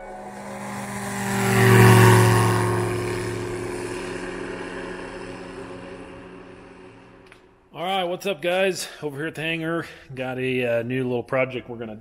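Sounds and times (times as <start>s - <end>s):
propeller aircraft flying past: 0.0s - 7.7s.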